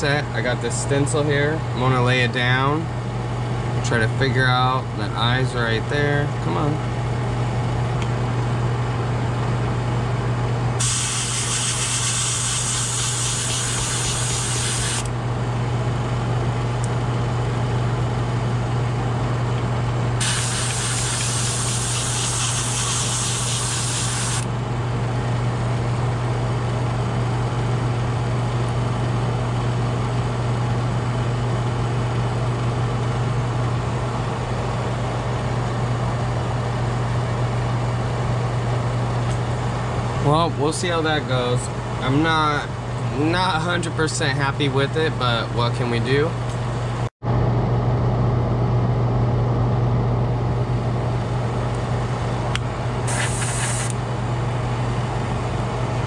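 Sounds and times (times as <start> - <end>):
steady low hum: 0.0 - 56.0
airbrush hissing spray: 10.8 - 15.0, 20.2 - 24.4, 53.1 - 54.0.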